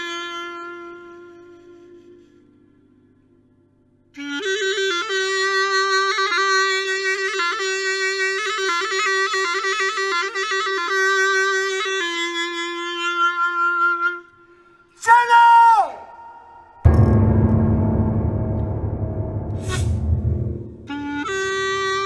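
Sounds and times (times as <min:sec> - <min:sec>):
small woodwind solo with trills: 0:00.0 - 0:02.9, 0:04.2 - 0:14.4.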